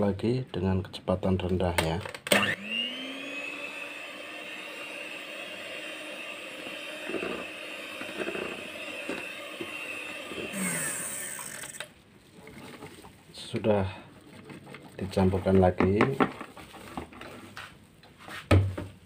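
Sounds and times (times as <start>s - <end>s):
hand mixer whining: 2.3s - 11.9s.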